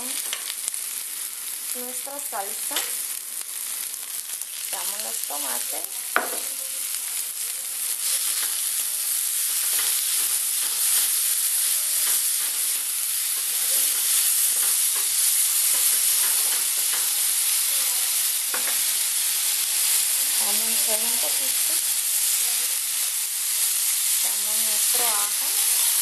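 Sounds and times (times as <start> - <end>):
vegetables sizzling in a frying pan: 0.0 - 26.0
spatula stirring and scraping: 6.2 - 17.8.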